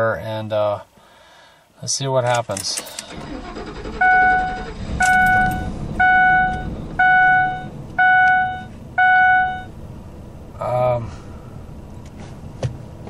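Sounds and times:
car engine idling: 0:03.0 - 0:13.0
dashboard warning chime: 0:04.0 - 0:09.7.

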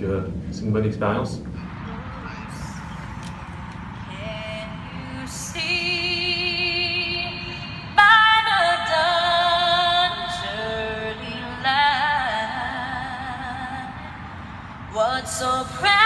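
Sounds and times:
woman singing unaccompanied: 0:04.1 - 0:14.2, 0:14.9 - 0:16.0.

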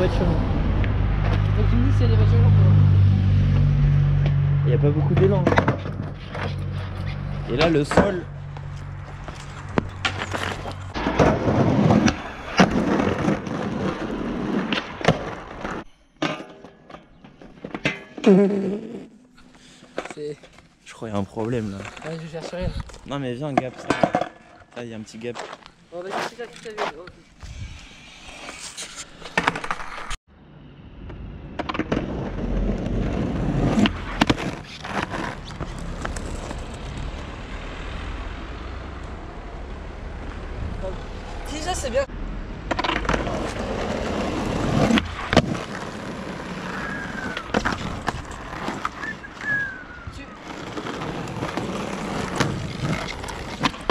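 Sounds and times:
skateboard wheels rolling on asphalt: 0:05.2 - 0:15.9, 0:19.6 - 0:30.2, 0:31.1 - 0:53.9
skateboard clacking on ground: 0:42.6 - 0:49.5.

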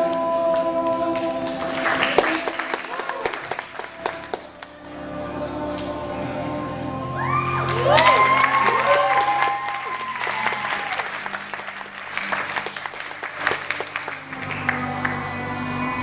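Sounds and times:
backing music: 0:00.0 - 0:16.0
audience clapping: 0:00.5 - 0:04.8, 0:07.6 - 0:15.2
audience whooping: 0:07.2 - 0:14.5.

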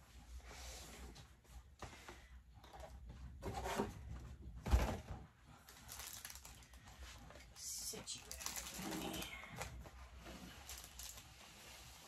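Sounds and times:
plastic bags rustling: 0:04.7 - 0:12.0.

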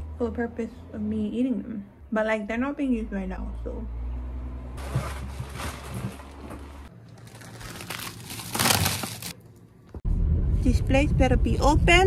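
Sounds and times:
plastic bag crinkling: 0:07.0 - 0:09.4.

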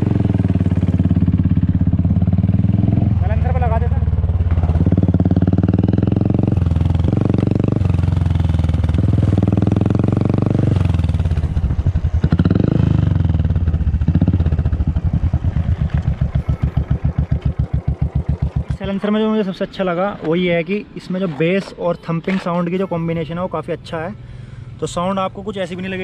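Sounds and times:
motorcycle engine thumping: 0:00.0 - 0:19.2.

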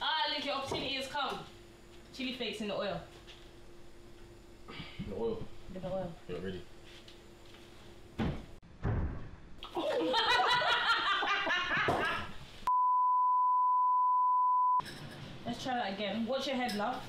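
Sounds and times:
people laughing: 0:09.7 - 0:12.3
high electronic test tone beep: 0:12.7 - 0:14.8.

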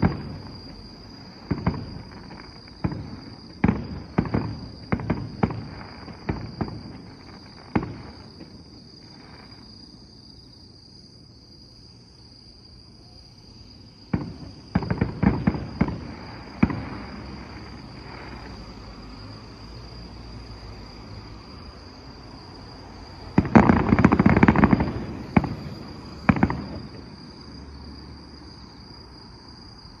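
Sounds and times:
fireworks bangs: 0:00.0 - 0:09.7, 0:14.1 - 0:18.6, 0:23.3 - 0:27.6.

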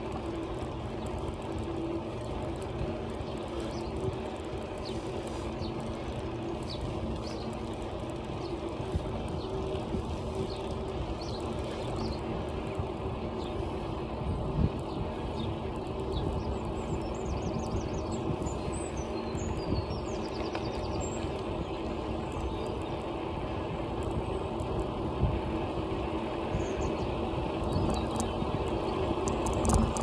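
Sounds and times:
bicycle tyre rumble on tarmac: 0:00.0 - 0:30.0
small birds chirping: 0:00.0 - 0:30.0
wind on microphone: 0:23.4 - 0:30.0.

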